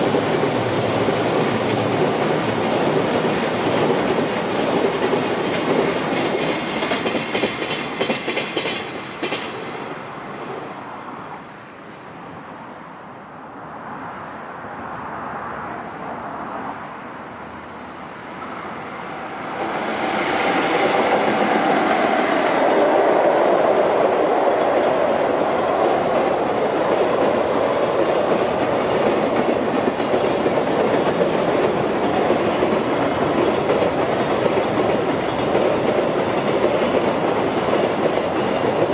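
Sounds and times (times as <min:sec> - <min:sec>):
train wheels clattering over rails: 0:00.0 - 0:10.0, 0:19.2 - 0:38.9
freight train passing: 0:00.0 - 0:38.9.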